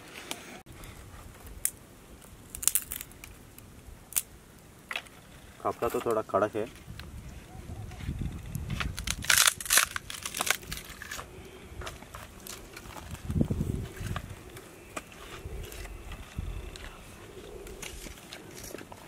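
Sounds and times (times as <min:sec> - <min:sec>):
twigs crunching and snapping: 0:01.4 - 0:07.2, 0:08.1 - 0:19.0.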